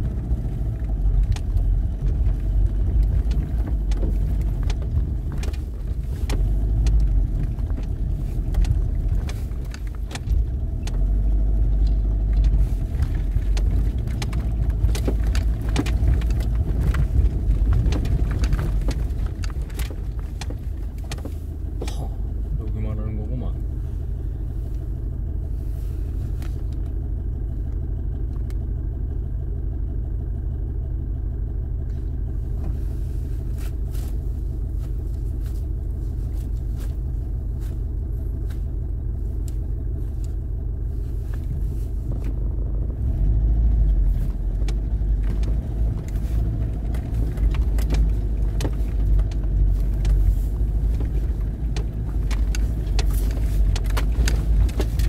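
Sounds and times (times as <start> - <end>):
stones knocking under tyres: 0.0 - 22.2, 43.0 - 55.0
vehicle engine running: 0.0 - 55.0.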